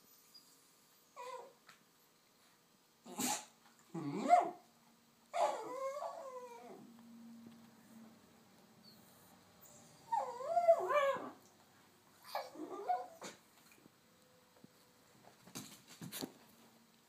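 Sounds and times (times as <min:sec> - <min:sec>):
small dog howling and whining: 0:01.1 - 0:01.6, 0:03.1 - 0:04.6, 0:05.3 - 0:06.9, 0:09.6 - 0:11.5, 0:12.2 - 0:13.4.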